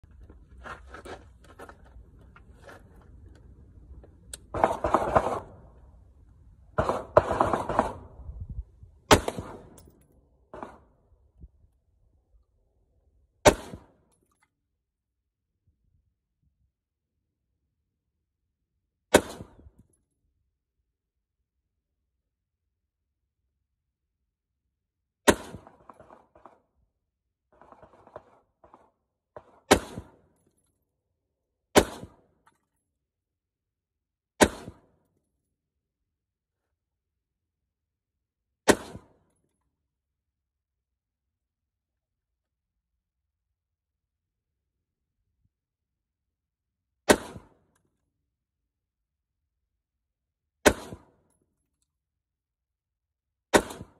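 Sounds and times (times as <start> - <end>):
rifle shots with echo: 6.8 - 8.2, 9.1 - 9.8, 13.4 - 14.0, 19.1 - 19.7, 25.3 - 26.5, 29.4 - 30.3, 31.8 - 32.3, 34.4 - 35.0, 38.7 - 39.2, 47.1 - 47.7, 50.6 - 51.2, 53.5 - 53.9.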